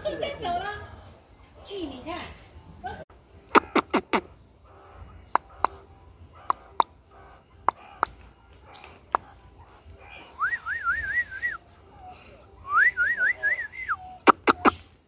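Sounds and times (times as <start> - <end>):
warbling whistle: 10.4 - 11.6.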